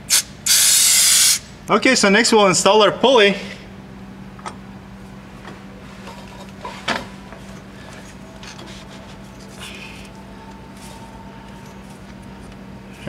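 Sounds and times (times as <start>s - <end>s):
low hum: 2.6s - 13.0s.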